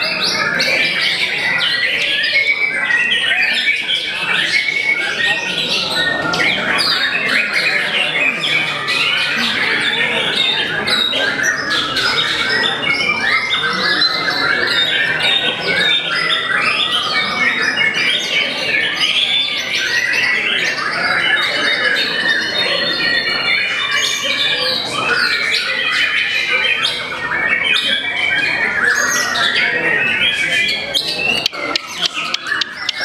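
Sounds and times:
songbird singing: 29.2 - 33.0.

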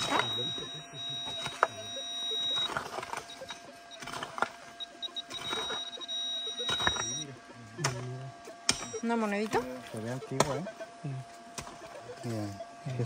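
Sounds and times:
metal detector tone: 0.0 - 7.3, 8.7 - 9.5.

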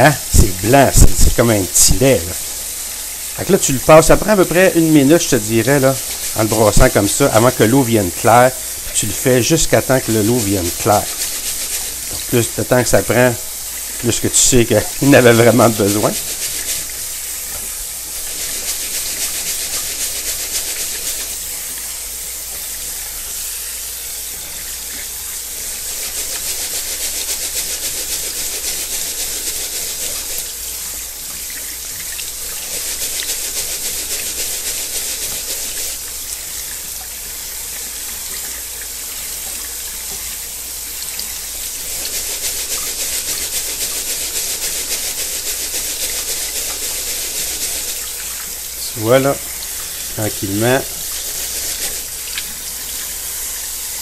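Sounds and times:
tap water splashing into sink: 10.8 - 12.4, 30.4 - 32.5, 36.0 - 41.5, 51.8 - 53.6.

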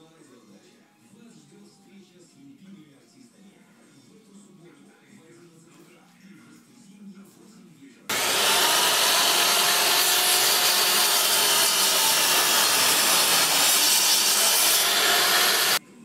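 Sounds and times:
power miter saw cutting wood: 8.1 - 15.8.

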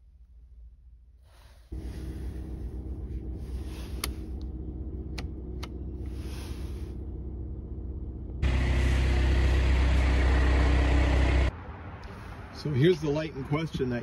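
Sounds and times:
car engine idling: 0.0 - 11.5
headlight switch clicks: 5.1 - 5.8.

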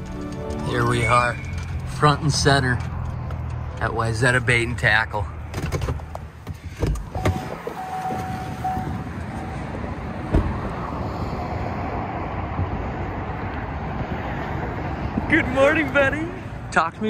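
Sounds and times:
highway traffic rushing: 0.0 - 17.0
thump: 10.3 - 10.6.

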